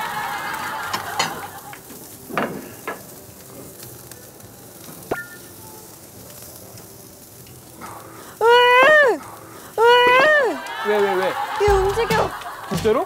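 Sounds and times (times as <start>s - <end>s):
meat sizzling on a grill: 0.0s - 13.0s
cooking utensils knocking and clinking: 0.9s - 1.5s, 11.7s - 13.0s.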